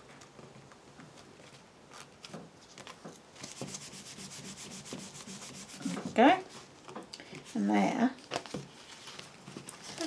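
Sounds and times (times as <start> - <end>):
hand rubbing cardstock: 3.4 - 6.1
paper rustles and taps: 8.3 - 10.0.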